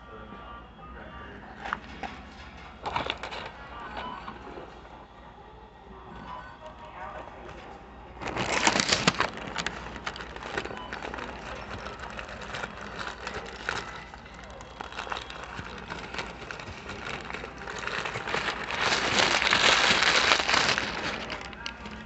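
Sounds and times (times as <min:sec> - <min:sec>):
paper wrapper crinkling: 0:08.2 - 0:22.0.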